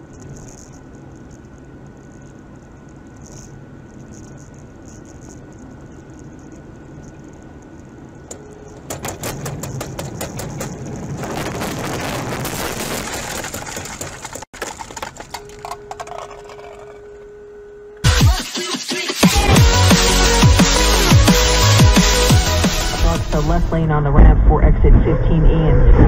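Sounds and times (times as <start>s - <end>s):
rapid clicks and rattles: 0.0s - 17.0s
car road noise: 0.0s - 17.5s
electronic music: 18.0s - 23.7s.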